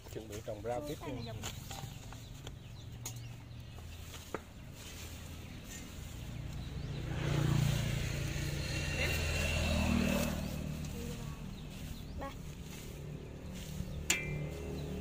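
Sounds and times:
vehicle engine driving past: 4.7s - 15.0s.

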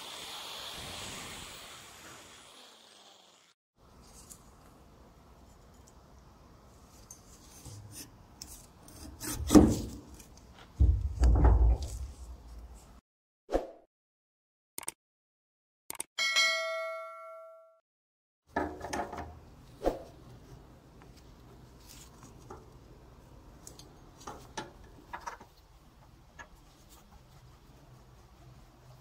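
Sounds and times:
click: 14.8s - 15.0s, 15.9s - 16.1s
notification ding: 16.2s - 17.8s.

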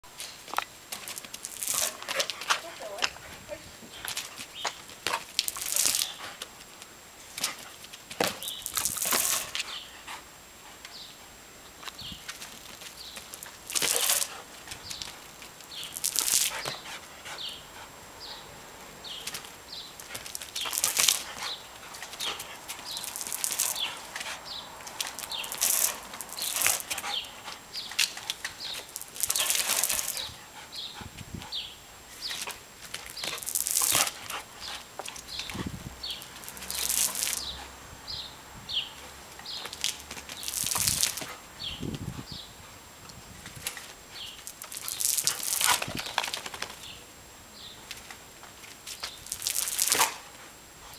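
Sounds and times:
sprayed water hissing: 20.0s - 30.5s, 36.0s - 37.8s, 44.2s - 46.0s.

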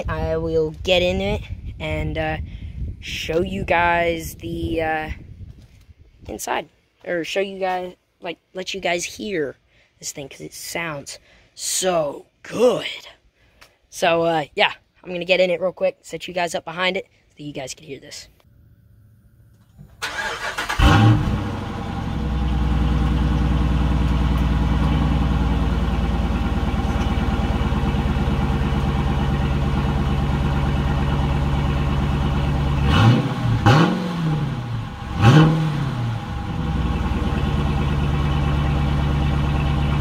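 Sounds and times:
car engine starting and idling: 19.9s - 40.0s
engine revving: 20.0s - 40.0s.

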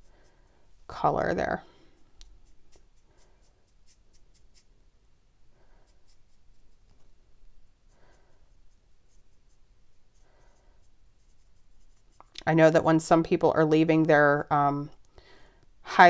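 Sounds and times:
marker tip scratching on card: 2.2s - 4.7s, 5.9s - 6.9s, 8.5s - 12.2s.

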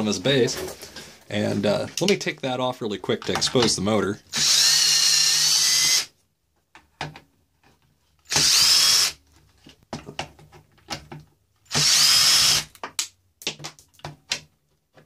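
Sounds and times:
cordless drill whining: 4.3s - 6.1s, 8.2s - 9.2s, 11.6s - 12.8s
handling clicks and knocks: 9.6s - 11.4s.

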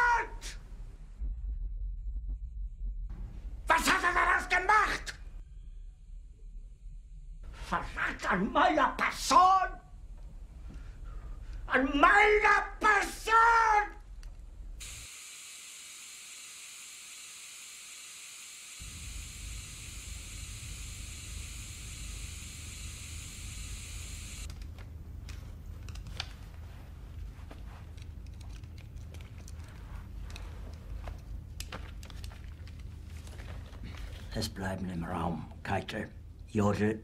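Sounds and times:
low rumble: 0.6s - 4.4s, 5.1s - 8.4s
television static hiss: 18.9s - 24.5s
faint clicks and rustles: 24.5s - 34.4s.

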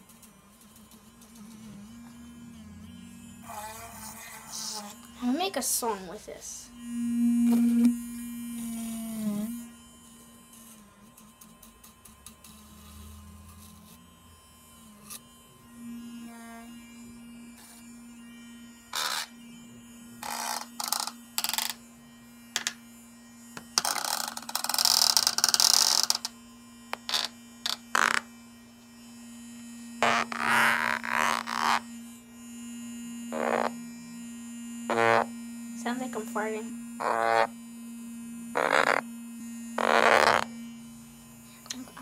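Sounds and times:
electric toothbrush buzzing: 0.0s - 42.0s
toothbrush rasping: 3.6s - 5.1s.

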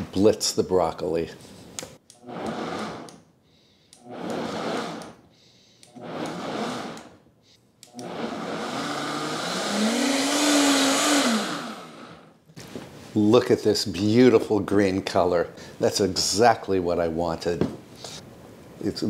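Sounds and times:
blender motor running: 2.2s - 3.2s, 4.0s - 5.2s, 5.9s - 7.2s, 7.9s - 12.4s.

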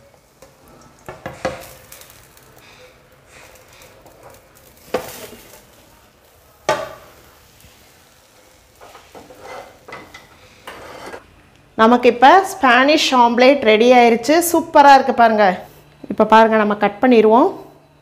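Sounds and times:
clinks and scrapes: 8.8s - 11.2s.

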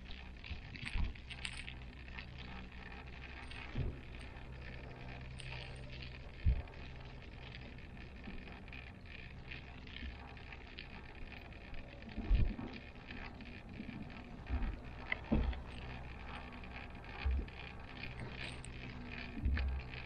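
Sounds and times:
cable car hum: 0.0s - 20.0s.

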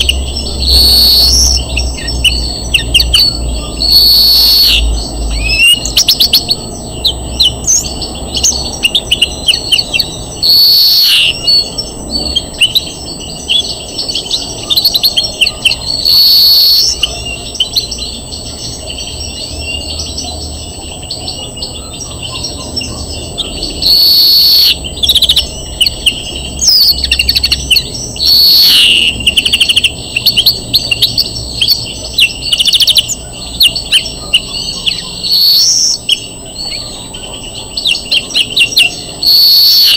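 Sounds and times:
greenfinch twittering trills: 0.0s - 39.9s.

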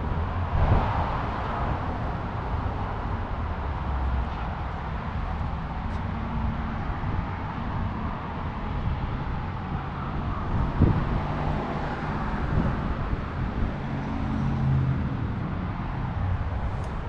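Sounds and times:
vehicle engine rumbling: 16.2s - 17.0s.

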